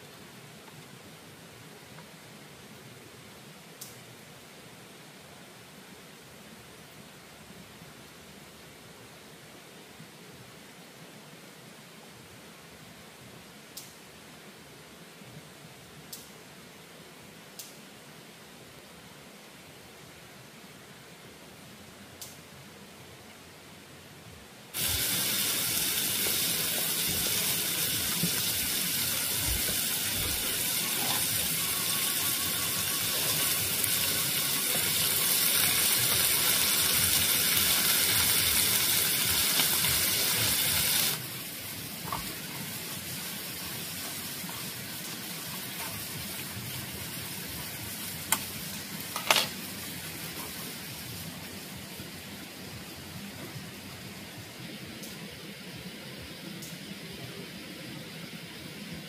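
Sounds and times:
quiet hiss: 0:00.0 - 0:59.0
running water rushing: 0:24.7 - 0:59.0.

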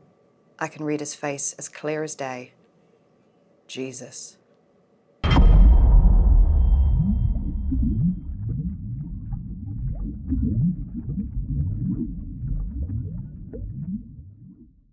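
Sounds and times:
short rising underwater glides: 0:05.7 - 0:14.8.

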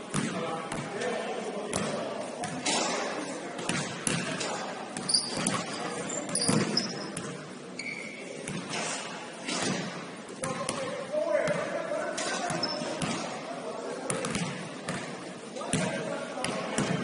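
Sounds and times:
basketball bouncing on court: 0:00.1 - 0:00.9, 0:01.7 - 0:02.6, 0:14.1 - 0:15.1
sneakers squeaking on floor: 0:05.0 - 0:08.8, 0:12.3 - 0:13.2.

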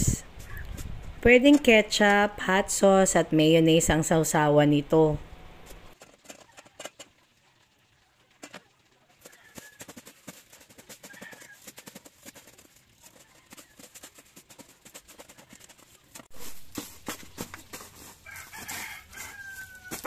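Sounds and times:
meat frying in oil: 0:06.0 - 0:09.8.

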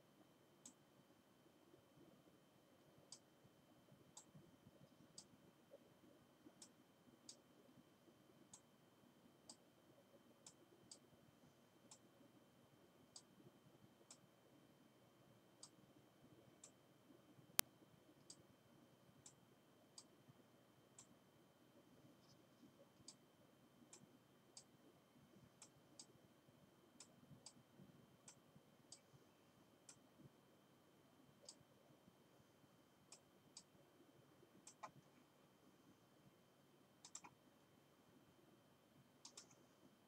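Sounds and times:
computer mouse clicks: 0:03.1 - 0:03.3, 0:04.1 - 0:05.4, 0:06.4 - 0:07.4, 0:17.6 - 0:18.4, 0:22.2 - 0:23.2, 0:23.8 - 0:24.7, 0:28.2 - 0:29.1, 0:31.4 - 0:31.6, 0:33.1 - 0:33.7, 0:34.6 - 0:35.2, 0:37.0 - 0:37.4, 0:39.2 - 0:39.7.

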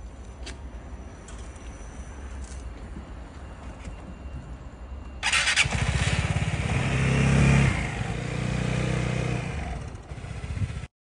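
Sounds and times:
scooter starter noise: 0:05.2 - 0:06.5
scooter engine idling: 0:05.2 - 0:10.9.

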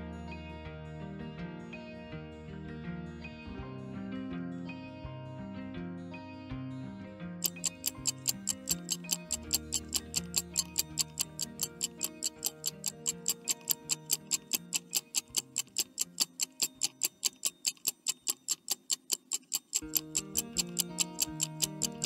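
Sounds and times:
soft background music: 0:00.0 - 0:18.0, 0:19.8 - 0:22.0
rapid clock ticking: 0:07.4 - 0:22.0.

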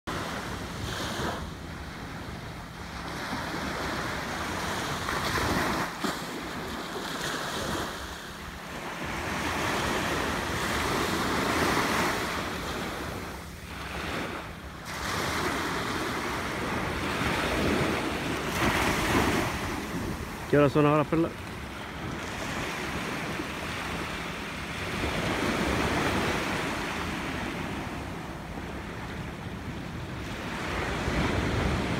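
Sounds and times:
small waves breaking on a beach: 0:00.1 - 0:31.9.

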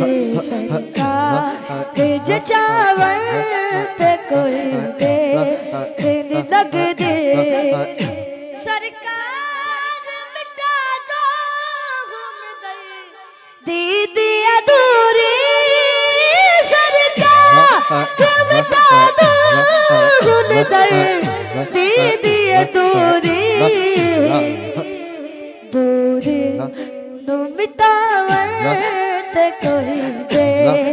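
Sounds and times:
boy singing into microphone: 0:00.0 - 0:30.9
low rhythmic pulse: 0:17.2 - 0:25.2.

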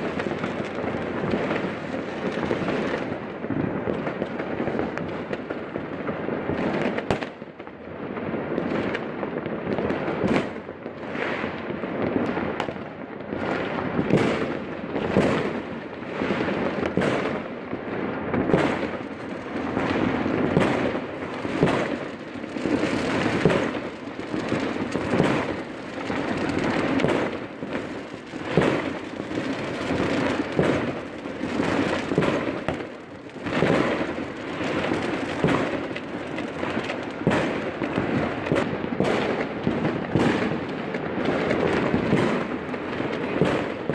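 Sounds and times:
rumble of fireworks explosions: 0:00.0 - 0:43.9
sharp firecracker bangs: 0:13.4 - 0:17.5, 0:18.3 - 0:19.1, 0:19.7 - 0:43.9.

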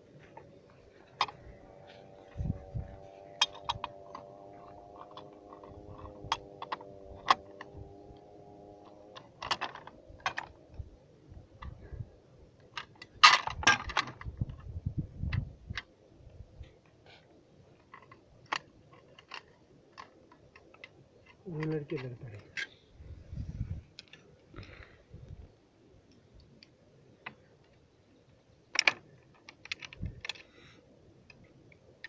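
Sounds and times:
metal gun parts clicking and clanking: 0:03.2 - 0:07.7, 0:09.1 - 0:10.6, 0:12.7 - 0:14.4.

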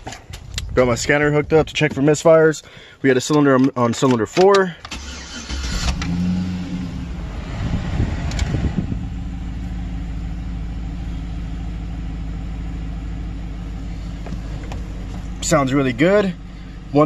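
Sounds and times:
car engine starting and idling: 0:04.8 - 0:17.0.

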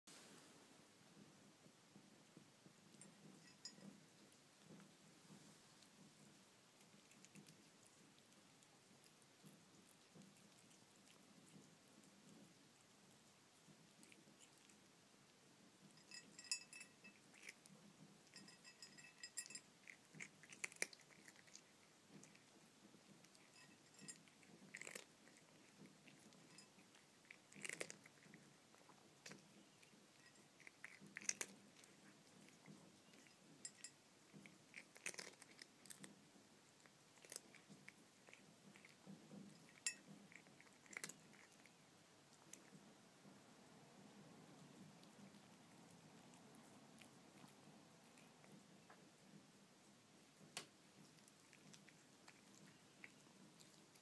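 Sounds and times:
cat crunching dry kibble: 0:02.8 - 0:15.0, 0:15.8 - 0:42.9, 0:50.9 - 0:54.0.

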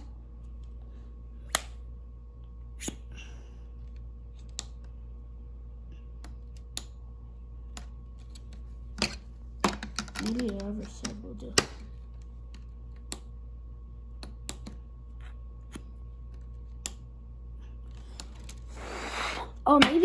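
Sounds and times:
steady low hum: 0:00.0 - 0:20.0
plastic parts clicking and tapping: 0:07.7 - 0:11.9.

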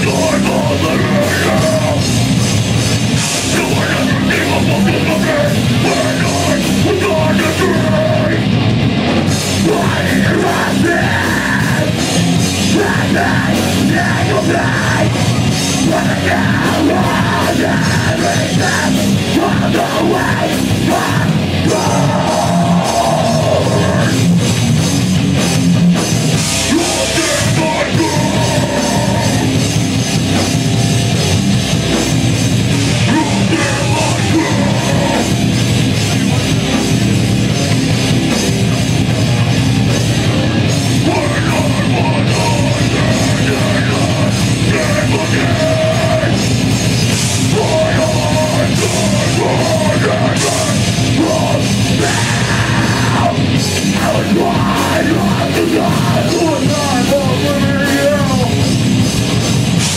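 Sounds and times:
distorted electric guitars: 0:00.0 - 0:59.9
drum kit: 0:00.0 - 0:59.9
vocalist shouting: 0:12.6 - 0:24.2, 0:26.7 - 0:29.5, 0:33.0 - 0:35.4, 0:47.5 - 0:58.6.

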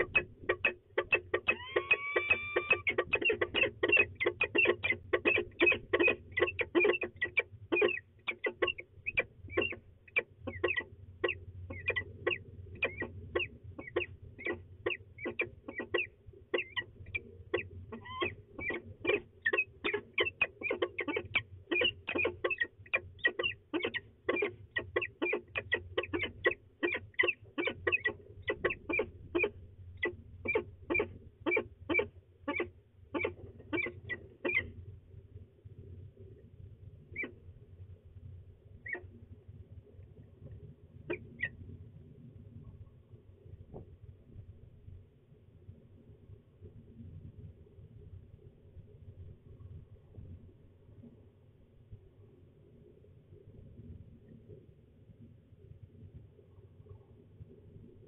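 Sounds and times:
falcons chupping calls: 0:00.0 - 0:34.7.

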